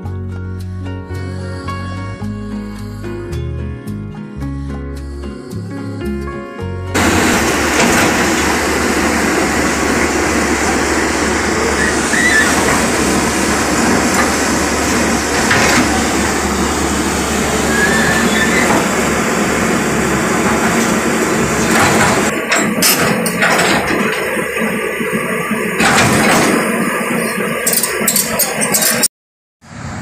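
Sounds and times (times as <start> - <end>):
excavator diesel engine drone: 6.9 - 30.0.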